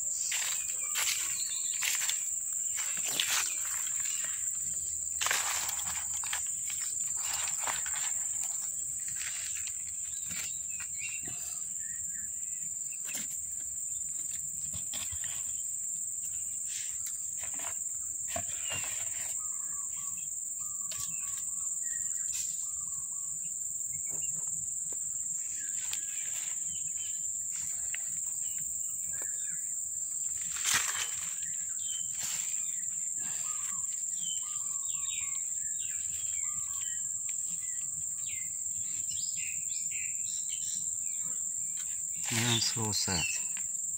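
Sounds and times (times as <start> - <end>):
bird chirps: 0.0 - 4.9, 31.1 - 43.5
insects droning: 0.0 - 43.9.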